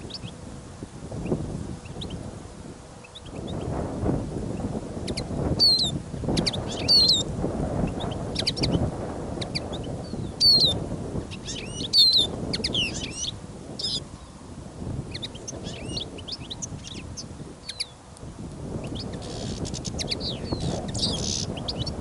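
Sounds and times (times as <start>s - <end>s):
wind rumbling on microphone: 0.0s - 22.0s
finches chirping: 4.6s - 14.4s, 15.1s - 18.0s, 18.8s - 22.0s.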